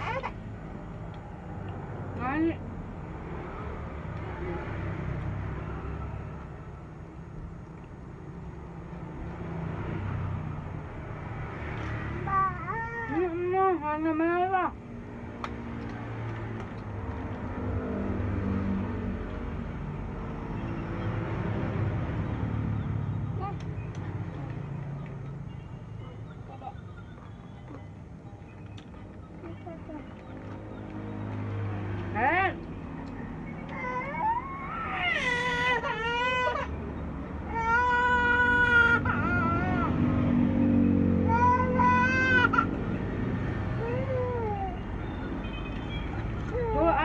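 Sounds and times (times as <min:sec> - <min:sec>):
toddler crying: 0:00.0 - 0:00.4, 0:12.2 - 0:13.2, 0:33.7 - 0:36.8, 0:37.4 - 0:40.0, 0:41.2 - 0:42.8, 0:43.8 - 0:44.8
vehicle engine humming: 0:00.0 - 0:47.0.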